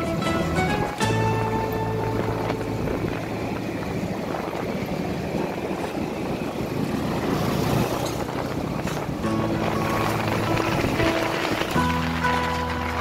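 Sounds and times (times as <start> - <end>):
motorcycle engine running: 0.0 - 13.0
wind rushing over microphone: 0.0 - 13.0.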